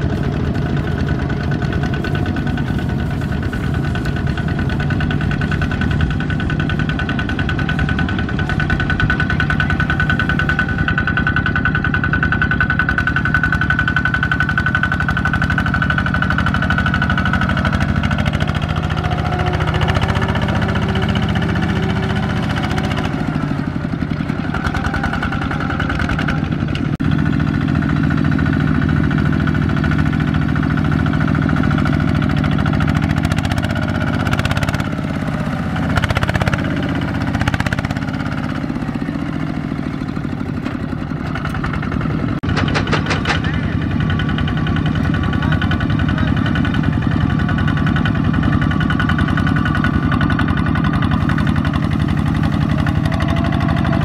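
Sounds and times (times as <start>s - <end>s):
diesel tractor engines chugging: 0.0s - 54.0s
sharp knocks: 40.7s - 44.4s.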